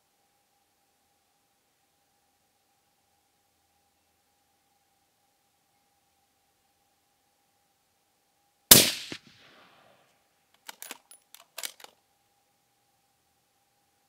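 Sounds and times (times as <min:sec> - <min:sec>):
rifle shot with echo: 0:08.7 - 0:09.9
rifle bolt clicks: 0:10.6 - 0:12.0.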